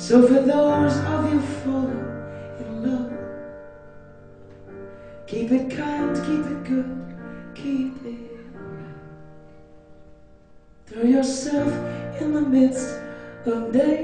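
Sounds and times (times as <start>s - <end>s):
held keyboard chords: 0.0s - 14.0s
woman singing: 10.9s - 14.0s.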